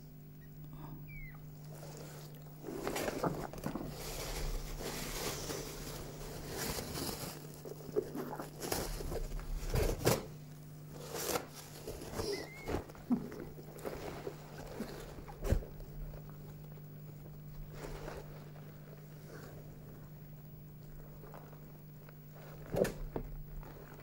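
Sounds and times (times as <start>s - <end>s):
low steady hum: 0.0s - 24.0s
faint high squeak: 1.0s - 1.4s, 12.2s - 12.9s
blanket and paper rustling: 1.8s - 10.2s.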